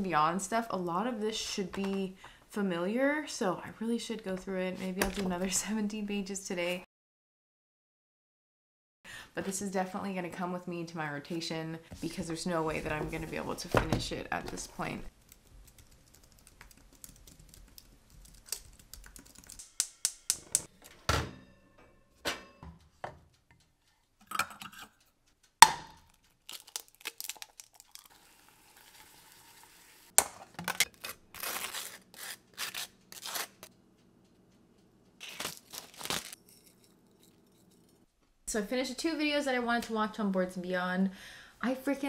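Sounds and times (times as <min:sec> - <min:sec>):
kitchen handling sounds: 0:12.0 - 0:15.0, 0:20.3 - 0:23.3
egg cracking on pan rim: 0:25.6 - 0:29.0
faint sizzle: 0:28.0 - 0:30.1.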